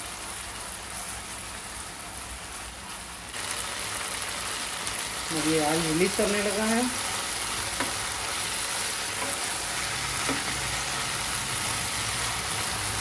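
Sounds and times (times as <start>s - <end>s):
chicken sizzling in oil: 0.0s - 13.0s.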